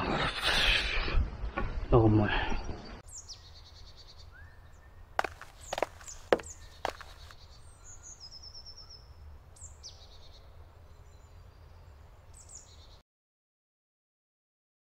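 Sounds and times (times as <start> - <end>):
forest birds calling: 2.3 - 13.0.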